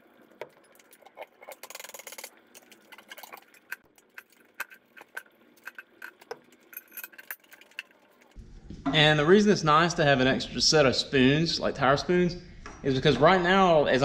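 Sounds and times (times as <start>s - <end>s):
metal tools clinking on rim: 4.6s - 7.9s.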